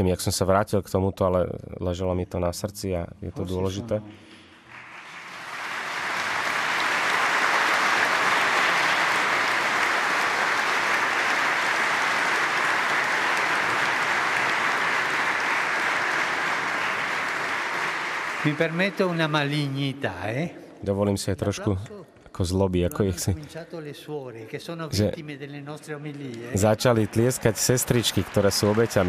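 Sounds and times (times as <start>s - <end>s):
audience applauding: 4.6s - 20.0s, 26.1s - 29.0s.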